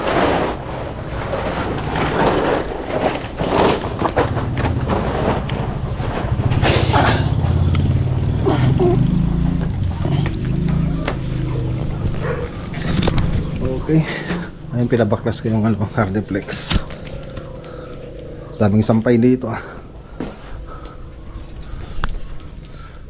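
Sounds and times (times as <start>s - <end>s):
knocks and rustling of climbing: 0.0s - 14.7s
low motor hum: 0.0s - 23.0s.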